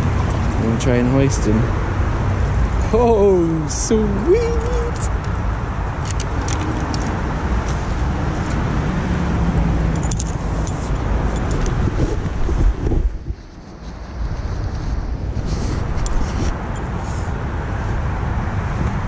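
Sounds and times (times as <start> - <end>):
metallic clinking of fishing tackle: 4.6 - 6.7, 10.0 - 11.8, 16.0 - 16.9.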